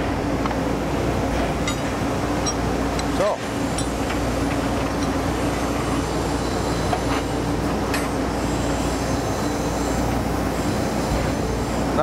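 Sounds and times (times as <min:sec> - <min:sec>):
shop machinery drone: 0:00.0 - 0:12.0.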